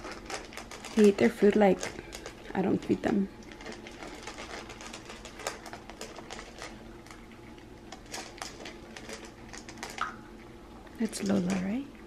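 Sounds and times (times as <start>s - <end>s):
kibble clicking against bowls: 0.0s - 10.2s
puppies crunching kibble: 0.0s - 10.2s.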